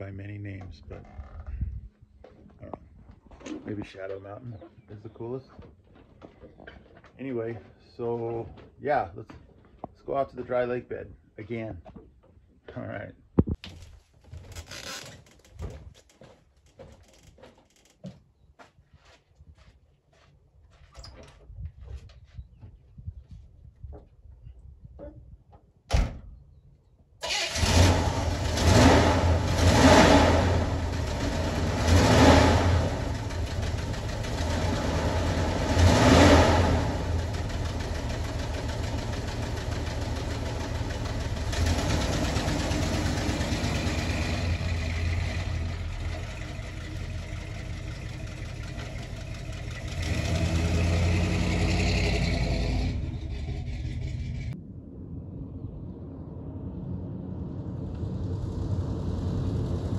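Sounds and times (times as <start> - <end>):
pickup engine starting and revving: 27.2 - 54.6.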